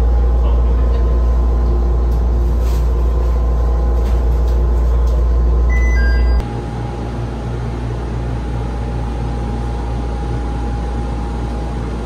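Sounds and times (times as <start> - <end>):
electronic chime: 5.7 - 6.4.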